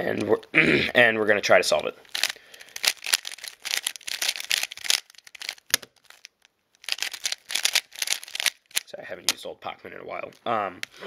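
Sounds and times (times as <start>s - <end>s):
puzzle cube layers clicking: 2.1s - 9.4s.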